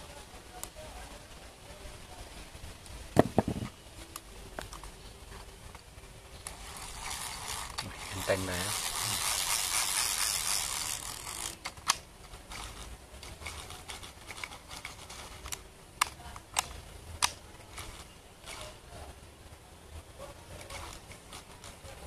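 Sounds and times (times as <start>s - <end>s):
fishing reel gears whirring: 6.4s - 11.6s, 12.5s - 15.4s.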